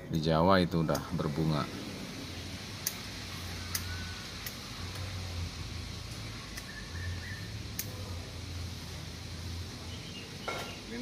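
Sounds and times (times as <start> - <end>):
steady hiss: 0.0 - 11.0
pruning shears snipping: 2.8 - 3.0, 3.7 - 5.2, 7.7 - 8.0.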